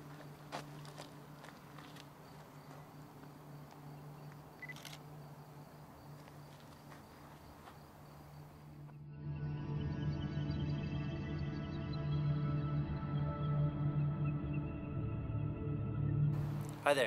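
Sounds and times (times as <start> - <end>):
camera beep: 4.6 - 5.0
camera shutter click: 4.6 - 5.0.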